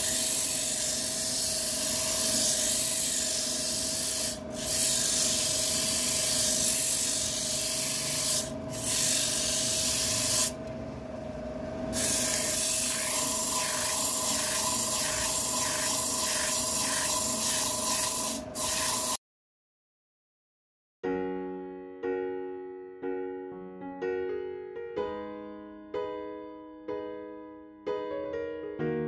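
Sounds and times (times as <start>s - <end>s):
sandpaper rubbing on wood: 0.0s - 10.6s, 12.0s - 19.2s.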